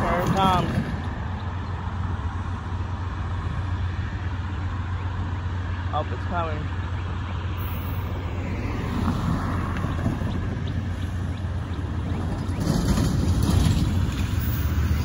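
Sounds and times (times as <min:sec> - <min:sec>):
wind rumbling on microphone: 0:00.0 - 0:05.8, 0:06.7 - 0:15.0
road traffic: 0:00.0 - 0:15.0
box truck driving past: 0:07.6 - 0:15.0.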